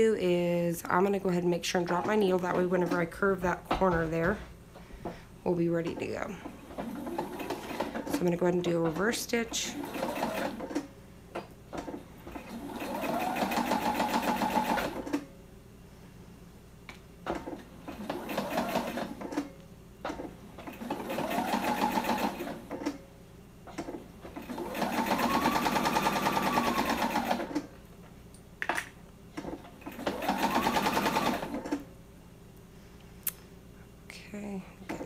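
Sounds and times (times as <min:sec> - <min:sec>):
sewing machine stitching: 0:05.9 - 0:10.9, 0:11.7 - 0:15.2, 0:17.3 - 0:19.5, 0:20.1 - 0:23.0, 0:23.8 - 0:27.7, 0:29.4 - 0:31.9.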